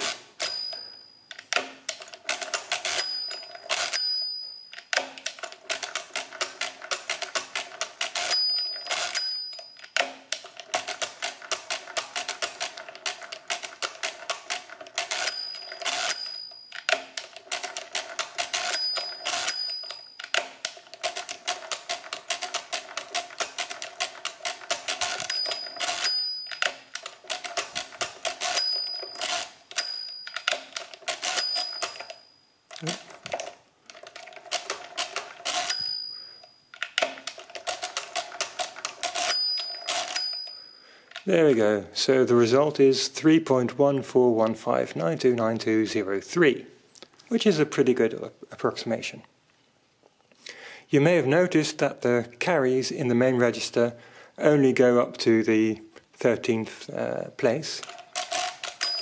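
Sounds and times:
calculator crank clicking and whirring: 0.0 - 41.3, 57.8 - 59.0.

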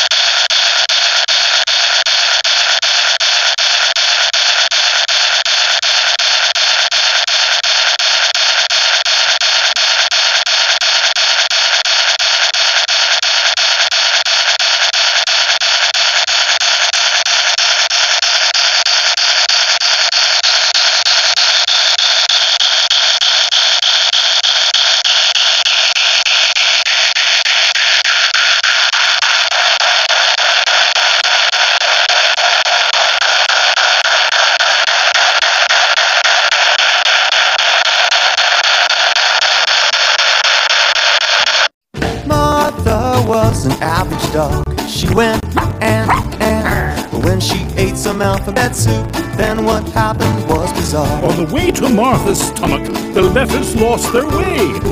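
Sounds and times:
sped-up narration hissing buzz: 42.2 - 54.9.

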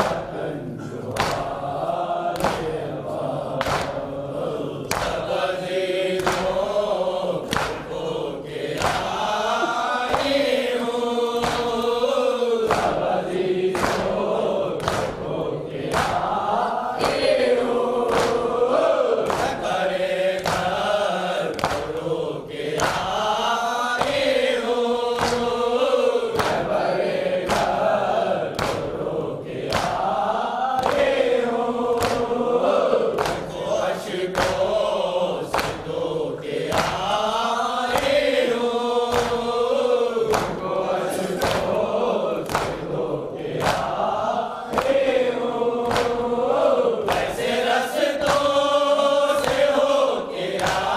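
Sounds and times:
men chanting: 0.0 - 50.9
hands slapping chests: 1.1 - 1.6, 2.3 - 2.8, 3.6 - 4.2, 4.8 - 5.3, 6.2 - 6.7, 7.4 - 13.1, 13.7 - 19.7, 20.3 - 23.3, 24.0 - 24.4, 25.1 - 25.6, 26.3 - 26.7, 27.4 - 27.8, 28.5 - 29.0, 29.6 - 32.4, 33.0 - 33.6, 34.3 - 37.2, 37.9 - 48.7, 49.4 - 49.8, 50.5 - 50.9.

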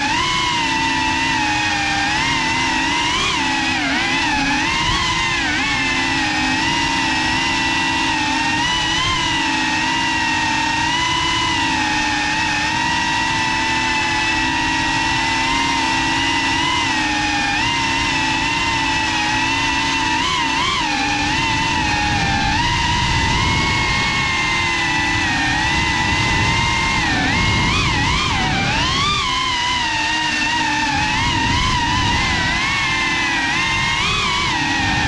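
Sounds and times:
drone motors whining: 0.0 - 35.0.

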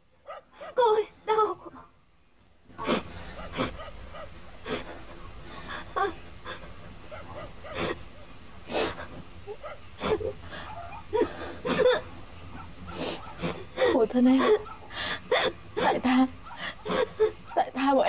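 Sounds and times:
woman sobbing and gasping: 4.6 - 6.8, 10.0 - 12.1, 13.0 - 17.4
woman whimpering: 5.7 - 6.7, 10.0 - 12.0, 13.0 - 17.4.

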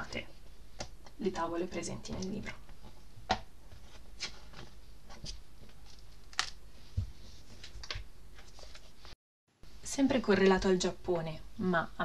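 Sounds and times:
book pages turning: 3.7 - 9.2.

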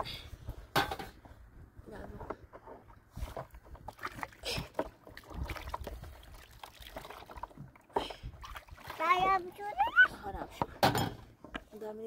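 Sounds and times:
water splashing in basin: 3.2 - 9.6
dishes knocking and clinking: 10.7 - 11.2.

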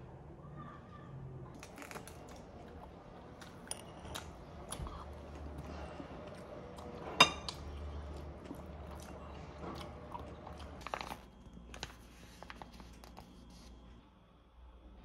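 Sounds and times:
cutlery clinking against dishes: 7.1 - 7.7.

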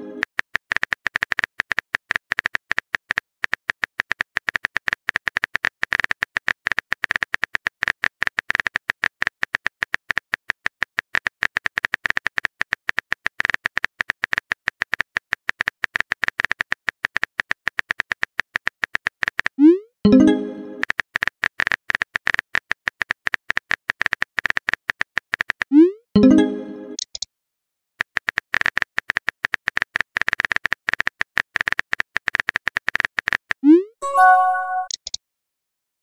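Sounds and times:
phone keyboard typing clicks: 34.2 - 35.2.

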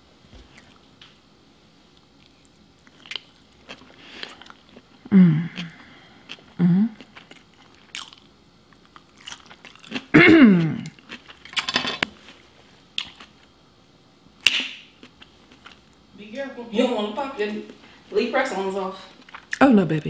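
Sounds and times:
chewing and crunching food: 0.4 - 1.0, 1.9 - 13.6, 14.5 - 16.1, 19.1 - 19.6
person humming: 5.1 - 5.8, 6.6 - 7.0, 10.2 - 10.9.

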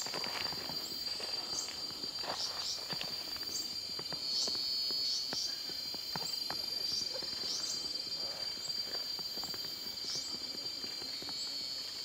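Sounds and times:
forest insects droning: 0.0 - 12.0.

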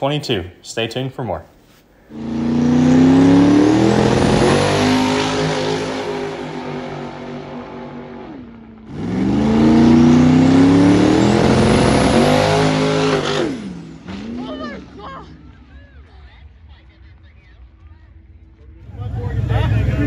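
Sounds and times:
drag car launching and accelerating: 2.1 - 15.0, 18.7 - 20.0.

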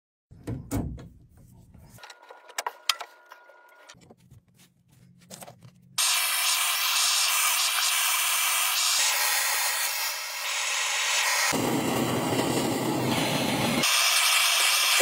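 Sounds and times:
gas torch hissing: 6.0 - 15.0.

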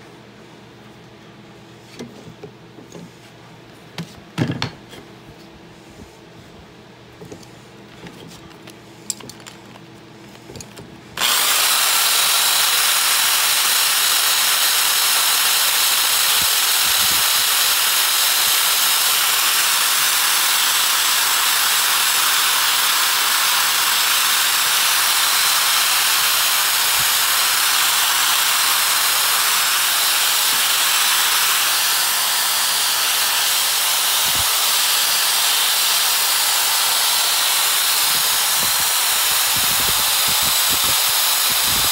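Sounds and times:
drill sanding metal: 11.2 - 41.9.

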